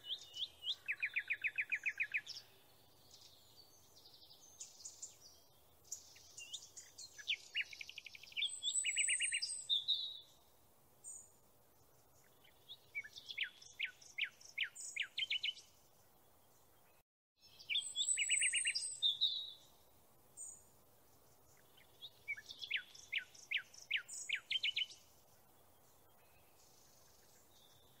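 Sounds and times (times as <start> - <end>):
songbird trilling: 0.0 - 2.4, 5.9 - 10.2, 17.6 - 19.7, 21.8 - 25.0.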